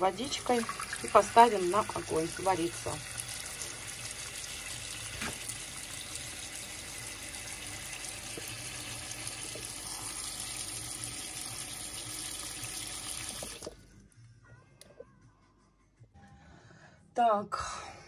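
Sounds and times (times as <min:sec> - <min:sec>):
tap water running into pot: 0:00.1 - 0:13.8.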